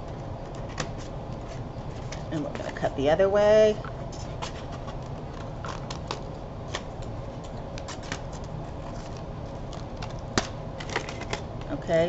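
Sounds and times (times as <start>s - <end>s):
steady low hum: 0.0s - 12.0s
paper crinkling: 7.8s - 11.4s.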